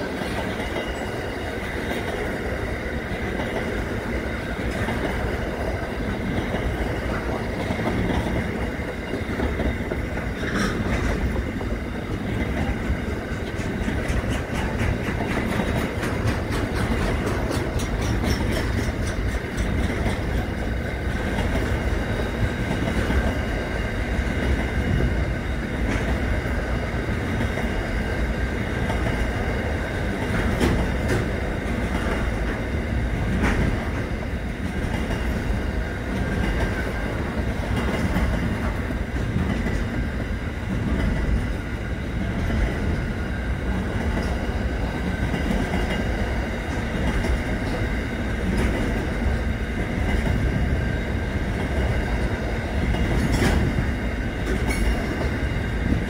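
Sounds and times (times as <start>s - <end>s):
wheels clicking over rail joints: 0.0s - 25.1s, 51.5s - 56.0s
rumble of train wheels on rail: 0.0s - 56.0s.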